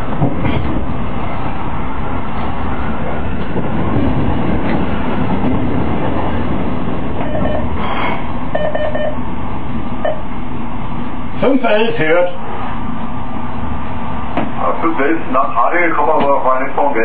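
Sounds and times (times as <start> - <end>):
train rumbling on rails: 0.0 - 17.0
rapid beeping tones: 7.2 - 7.8, 8.5 - 9.2, 10.0 - 10.3.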